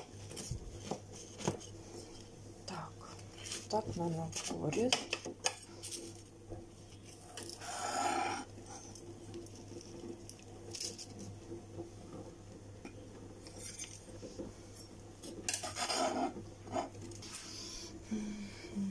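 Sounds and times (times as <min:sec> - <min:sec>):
metal blade scraping a tray: 0:15.5 - 0:16.9.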